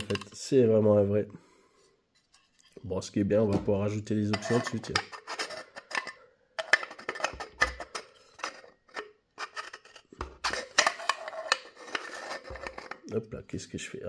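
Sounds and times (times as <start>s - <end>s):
light metallic clicks and scrapes: 2.2s - 2.8s, 4.2s - 13.2s.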